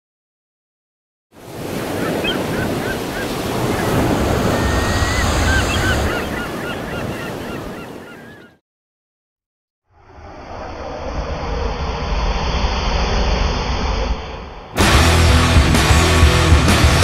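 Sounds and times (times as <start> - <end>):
surf rushing: 1.4 - 8.2, 10.2 - 17.0
waterfowl calling: 1.5 - 8.6
wind rushing: 3.2 - 6.4, 9.9 - 15.6.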